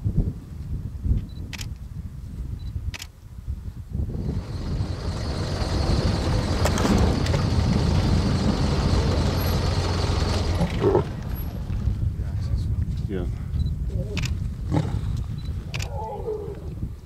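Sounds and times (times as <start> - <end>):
vehicle engine rumbling: 4.0 - 15.8.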